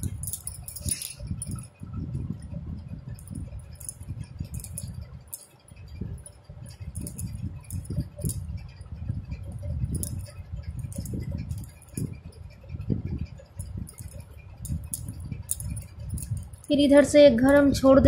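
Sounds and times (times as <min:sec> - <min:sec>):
crochet hook clinking: 0:00.0 - 0:01.8, 0:03.1 - 0:08.5, 0:09.5 - 0:12.5, 0:13.5 - 0:16.8.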